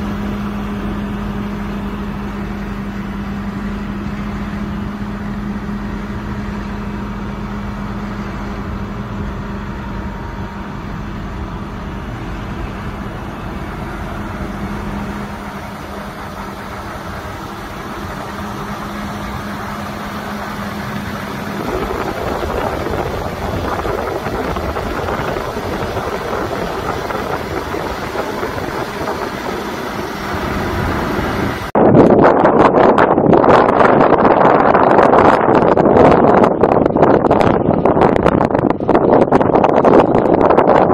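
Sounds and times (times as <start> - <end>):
diesel tractor engine idling: 0.0 - 31.8
rough noisy wash: 0.0 - 40.9.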